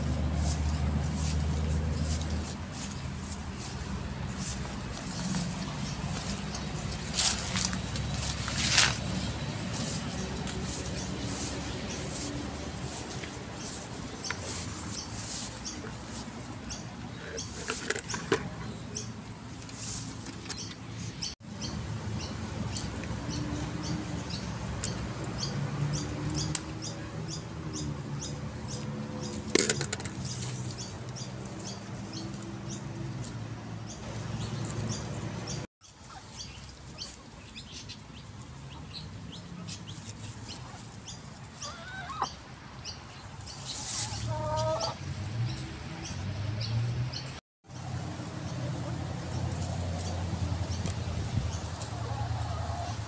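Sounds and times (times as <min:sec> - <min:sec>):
chickens clucking: 0:00.2 - 0:19.9, 0:35.9 - 0:46.2, 0:47.8 - 0:53.0
sharp clicks and rustles: 0:17.3 - 0:18.7, 0:29.2 - 0:31.2.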